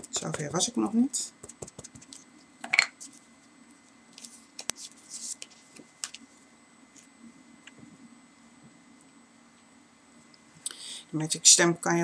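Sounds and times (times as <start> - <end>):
faint steady hum: 0.0 - 12.0
stamp tapping on paper: 1.4 - 2.1.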